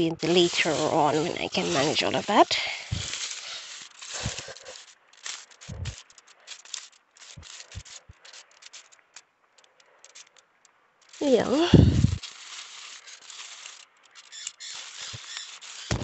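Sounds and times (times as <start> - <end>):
leaves rustling and crackling: 0.0 - 16.0
soft low thumps: 5.7 - 6.0, 11.4 - 12.2.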